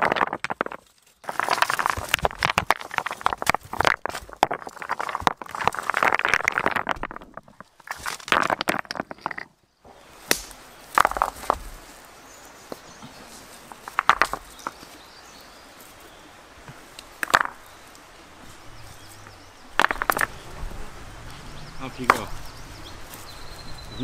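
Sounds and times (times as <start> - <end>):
rocks clattering onto stones: 0.0 - 9.6, 10.2 - 11.8, 12.7 - 15.1, 16.6 - 18.0, 19.6 - 20.4, 21.9 - 23.4
stones clacking against stones: 0.0 - 9.6, 10.2 - 11.8, 12.7 - 15.0, 16.7 - 18.0, 19.6 - 20.4, 21.9 - 23.3.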